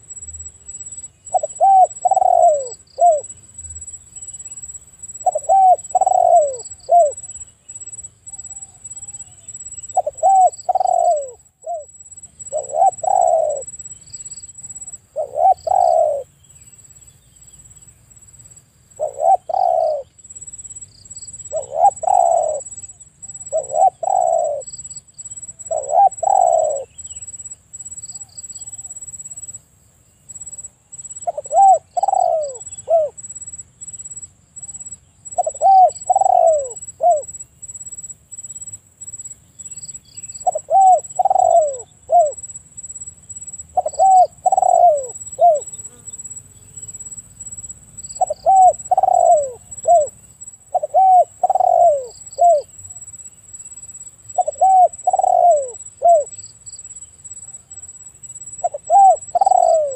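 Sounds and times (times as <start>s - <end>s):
dove cooing: 1.3s - 3.3s, 5.2s - 7.3s, 8.3s - 13.8s, 14.8s - 16.3s, 19.0s - 20.1s, 21.5s - 24.7s, 25.7s - 27.0s, 31.2s - 33.2s, 34.6s - 37.3s, 40.4s - 42.4s, 43.8s - 46.0s, 48.2s - 52.7s, 54.4s - 56.4s, 58.6s - 59.9s.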